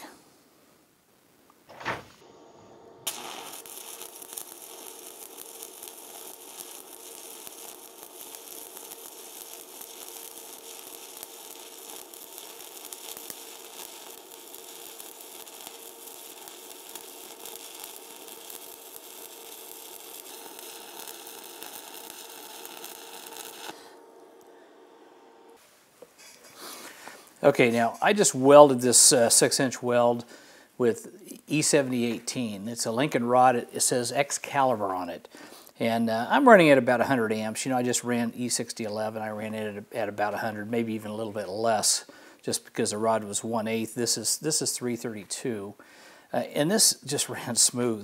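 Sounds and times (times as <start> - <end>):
welding arc crackling sizzle: 2.2 - 24.7.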